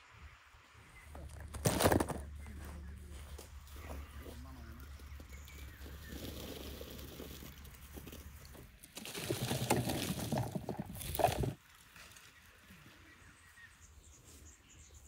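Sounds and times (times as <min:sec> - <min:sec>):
cherries pattering into a crate: 0:01.3 - 0:02.4, 0:05.9 - 0:11.6.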